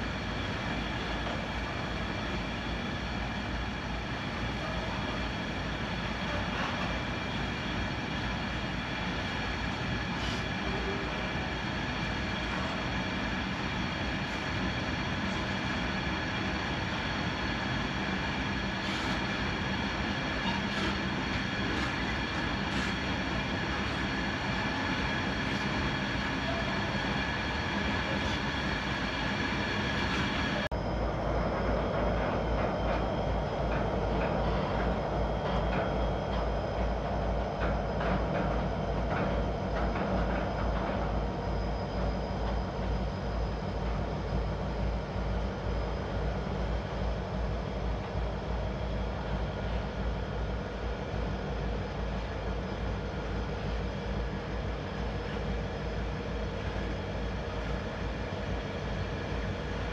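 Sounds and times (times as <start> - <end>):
diesel locomotive engines: 0.0 - 59.9
train wheel clatter: 18.8 - 28.5, 33.7 - 43.2.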